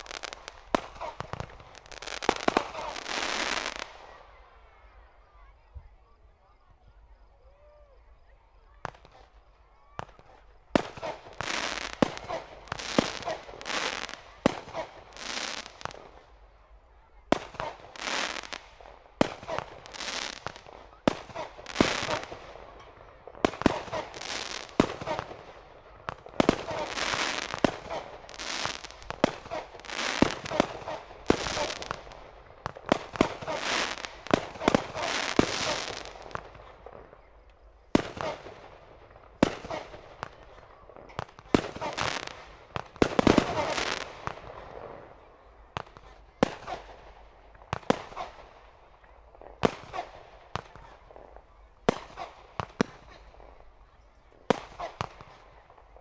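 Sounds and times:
firework bangs and crackle: 0.0 - 5.3, 8.6 - 56.0.

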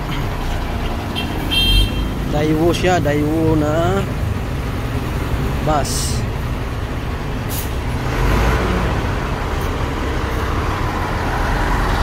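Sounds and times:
bus engines idling: 0.0 - 12.0
air brake hiss: 7.5 - 7.8.

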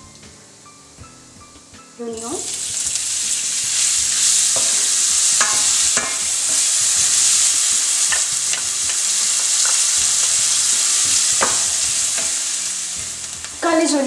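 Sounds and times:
onion sizzling in oil: 0.0 - 14.0
spatula scraping a pan: 2.5 - 12.9.

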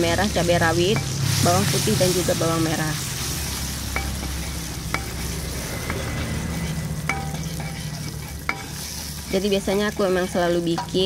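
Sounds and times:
chili paste sizzling in oil: 0.0 - 11.0
metal spatula scraping wok: 0.0 - 11.0
spatula striking wok ringing: 0.7 - 1.9, 3.4 - 11.0.

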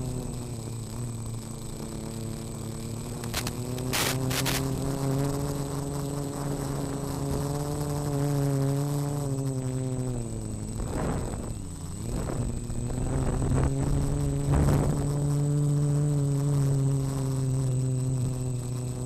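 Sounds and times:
drone motors buzzing: 0.0 - 19.0
faint high whine: 0.0 - 19.0
short bursts of hiss: 3.3 - 4.6.

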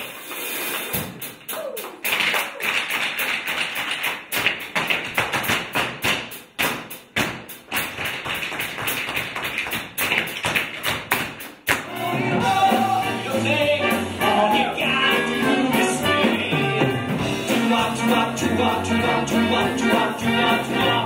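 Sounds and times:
tap shoes on stage floor: 0.9 - 11.9.

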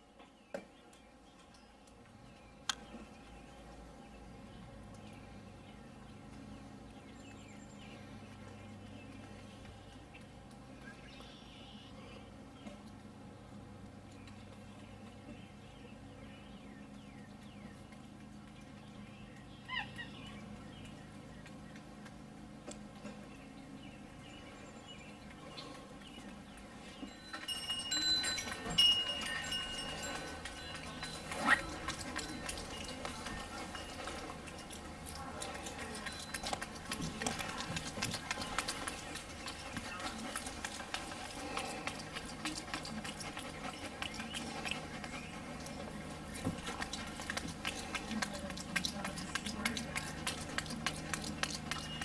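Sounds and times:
monkey chewing with lips smacking: 16.9 - 52.0
wind chimes ringing: 27.0 - 35.0, 35.6 - 36.6.

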